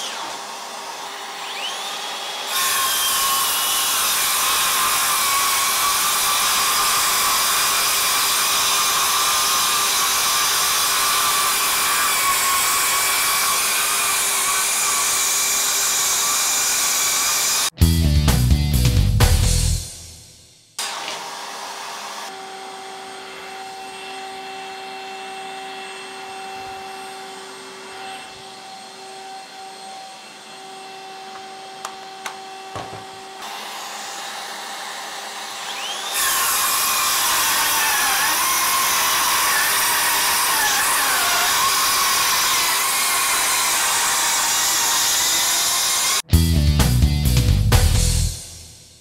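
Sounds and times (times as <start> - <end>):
shop vacuum humming: 20.8 - 46.2.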